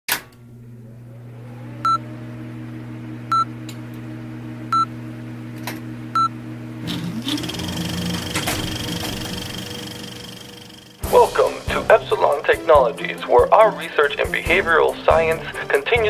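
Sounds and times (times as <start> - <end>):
steady low hum: 0.4 - 11.5.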